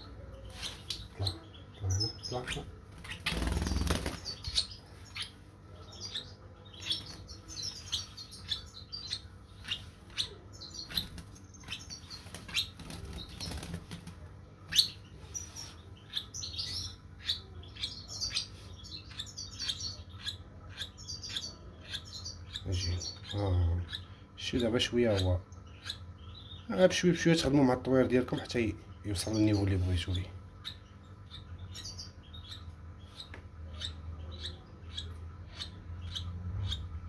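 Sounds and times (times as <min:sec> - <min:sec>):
bird chick chirping: 0:00.0 - 0:37.0
wings fluttering: 0:02.8 - 0:04.7, 0:10.8 - 0:14.9.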